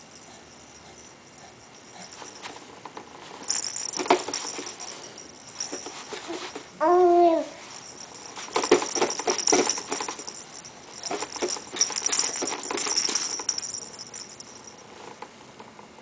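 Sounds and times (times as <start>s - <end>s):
cloth ball toy jingling: 0.0s - 14.9s
light knocks and rustles: 2.0s - 6.7s, 7.7s - 15.2s.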